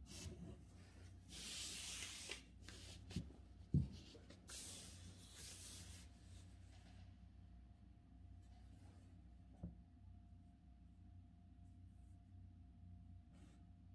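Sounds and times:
paper sliding across desk: 1.3 - 3.3, 4.2 - 6.1.

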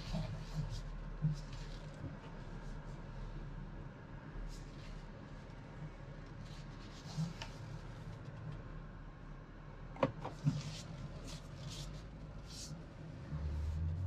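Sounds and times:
low engine rumble: 0.0 - 14.0.

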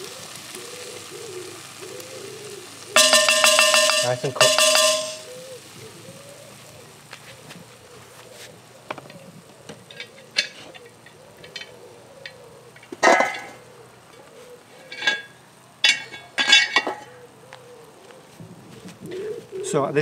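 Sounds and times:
metal lid clanking on coals: 3.0 - 5.4, 8.9 - 17.2.

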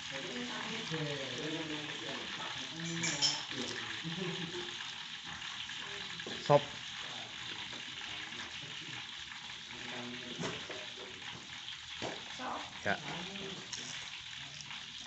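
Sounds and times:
oil sizzling in a wok: 0.0 - 15.0.

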